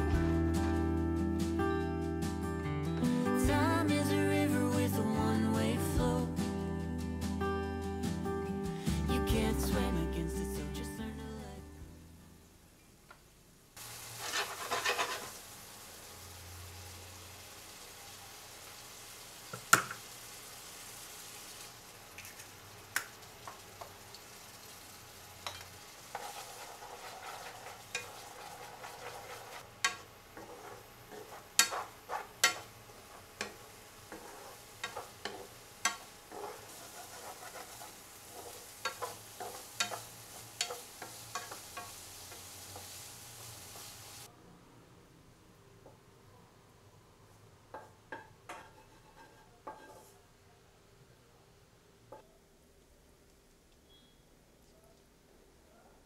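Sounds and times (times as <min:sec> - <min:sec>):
food sizzling in a wok: 0:13.7 - 0:44.3, 0:47.4 - 0:50.2.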